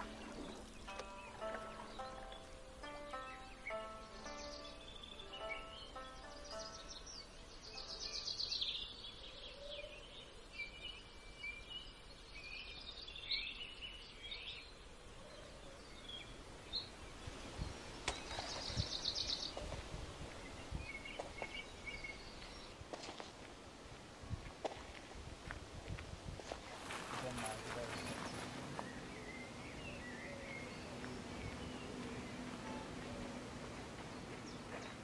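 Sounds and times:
footsteps: 0:00.0 - 0:04.4, 0:22.4 - 0:29.2, 0:30.7 - 0:35.0
songbirds chirping: 0:00.0 - 0:35.0.

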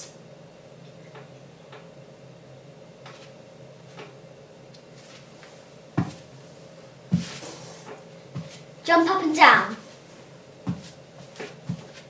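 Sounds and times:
faint steady hum: 0:00.0 - 0:12.0
bare foot thud on carpet: 0:06.0 - 0:06.2, 0:07.1 - 0:07.4, 0:10.7 - 0:10.9.

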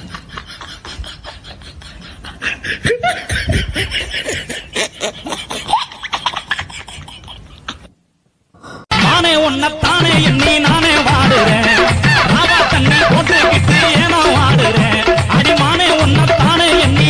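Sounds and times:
person chuckling: 0:00.0 - 0:08.0.

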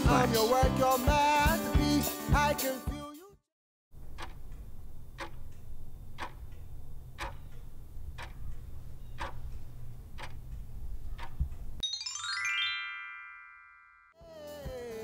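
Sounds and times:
clock-like ticking: 0:04.0 - 0:11.8
falling chime sweep: 0:11.8 - 0:14.2.

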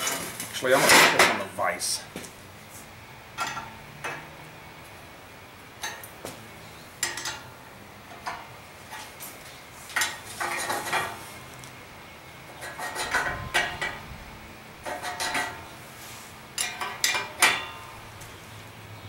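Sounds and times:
tools clinking on steel: 0:16.6 - 0:17.8.

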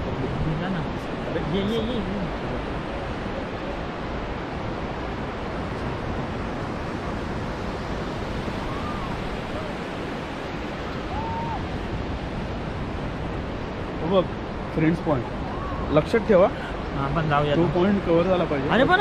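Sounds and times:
surf breaking on beach: 0:00.0 - 0:19.0
wind on microphone: 0:00.0 - 0:19.0.

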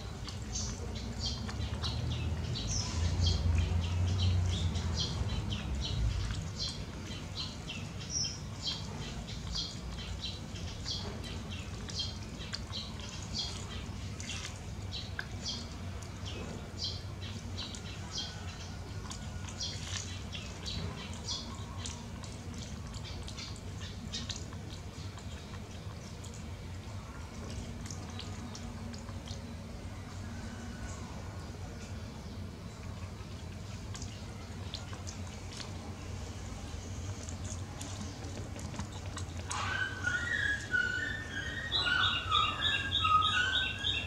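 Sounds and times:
monkey chewing and crunching: 0:32.8 - 0:41.1.

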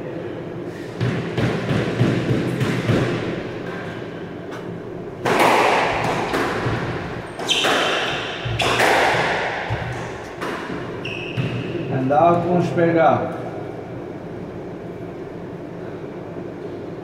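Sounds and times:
squash racket strikes: 0:00.9 - 0:11.9
ball smacking off court walls: 0:05.2 - 0:11.6.

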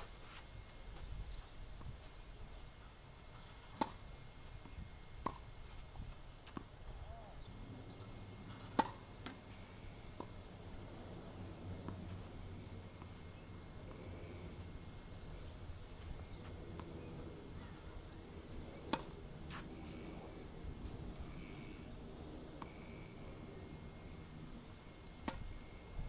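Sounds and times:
tennis ball bouncing on court: 0:03.7 - 0:04.0, 0:04.6 - 0:05.5, 0:08.6 - 0:09.4, 0:18.9 - 0:19.2, 0:25.2 - 0:25.5
tennis ball hit by racket: 0:03.7 - 0:04.0, 0:05.2 - 0:05.4, 0:08.7 - 0:09.4, 0:18.9 - 0:19.2, 0:25.2 - 0:25.5.

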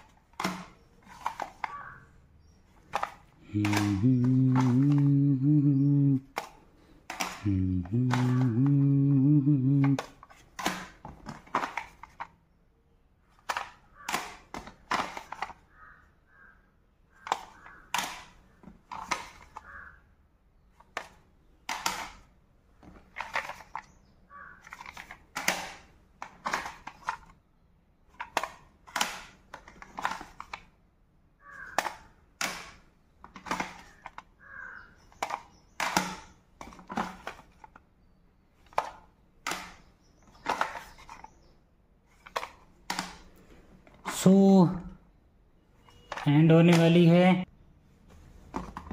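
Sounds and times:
plastic cassette cases clacking: 0:00.0 - 0:05.2, 0:06.2 - 0:08.9, 0:09.7 - 0:12.4, 0:13.3 - 0:15.7, 0:17.2 - 0:19.7, 0:20.7 - 0:27.4, 0:28.1 - 0:30.8, 0:31.5 - 0:41.5, 0:42.1 - 0:44.1, 0:45.9 - 0:47.1, 0:48.5 - 0:48.9.

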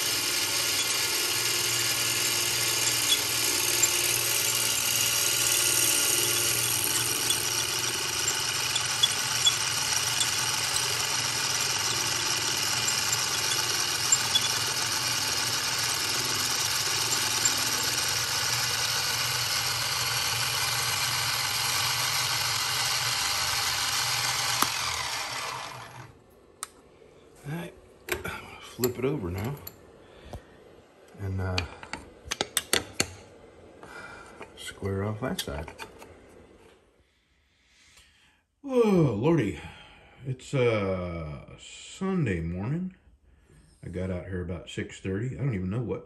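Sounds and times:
planer cutting wood in drill press: 0:00.0 - 0:26.2.

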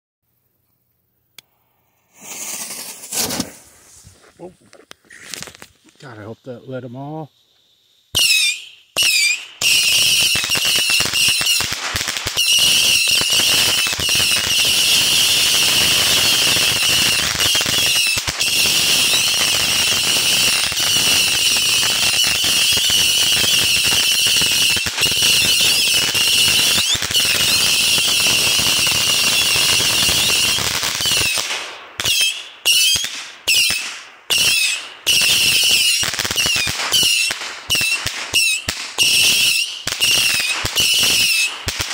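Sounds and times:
rocket pops: 0:02.1 - 0:06.0
whistling rockets firing: 0:02.2 - 0:03.7, 0:08.1 - 0:41.9.

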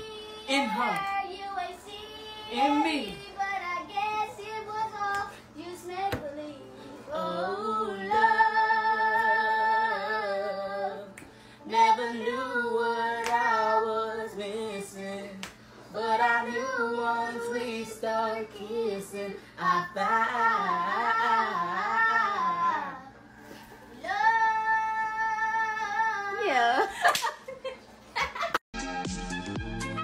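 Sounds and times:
girl singing: 0:00.0 - 0:15.3, 0:16.0 - 0:23.3, 0:23.9 - 0:26.9
woman singing: 0:00.0 - 0:23.1.

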